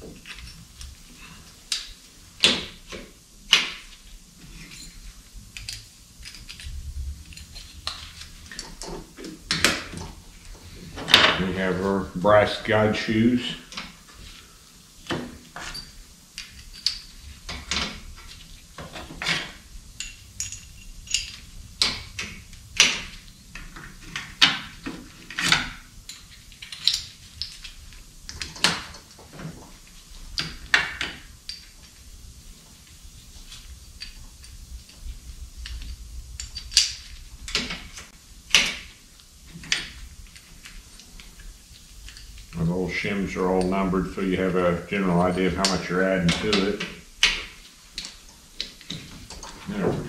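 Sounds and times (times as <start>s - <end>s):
light metallic clinks and taps: 20.0s - 22.0s.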